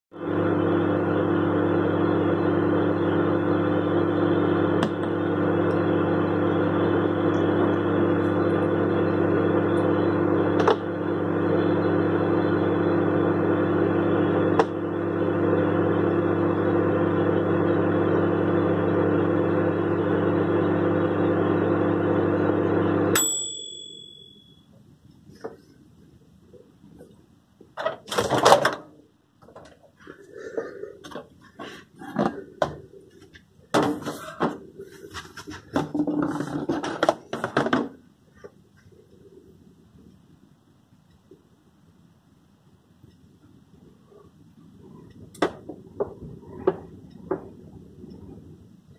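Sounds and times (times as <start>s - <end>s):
microwave oven humming: 0.1s - 48.9s
timer bell ding: 23.2s - 24.7s.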